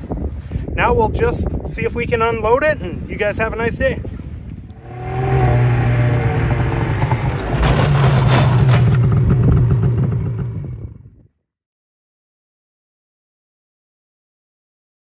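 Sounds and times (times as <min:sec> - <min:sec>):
snowmobile engine running: 0:04.8 - 0:11.1
clatter: 0:06.5 - 0:11.1.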